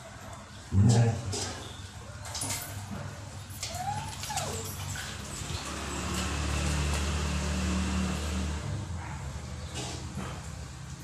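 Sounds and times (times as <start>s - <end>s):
vehicle engine passing: 4.9s - 11.0s.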